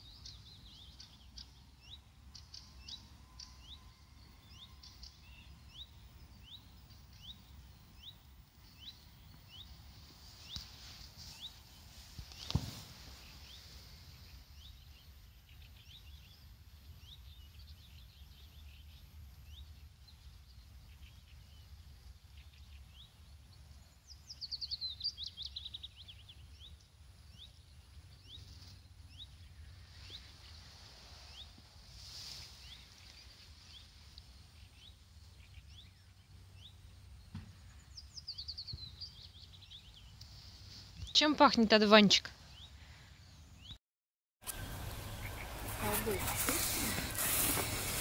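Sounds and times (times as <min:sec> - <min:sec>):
songbirds chirping: 0:00.0 - 0:43.8, 0:44.4 - 0:48.0
low outdoor rumble: 0:44.5 - 0:48.0.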